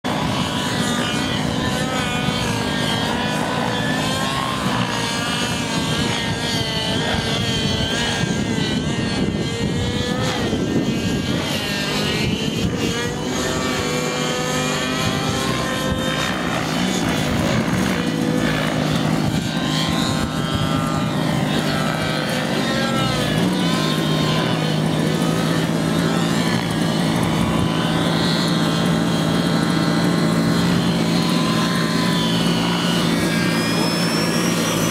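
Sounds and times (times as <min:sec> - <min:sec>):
model helicopter rotor whine: 0:00.0 - 0:34.9.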